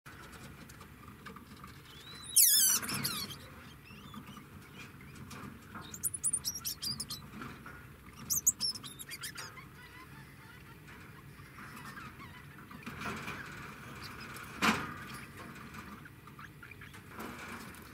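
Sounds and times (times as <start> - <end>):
degu high squeal: 2.0 - 4.2
degu high-pitched chirps: 2.0 - 4.2, 5.8 - 7.2, 8.3 - 12.6.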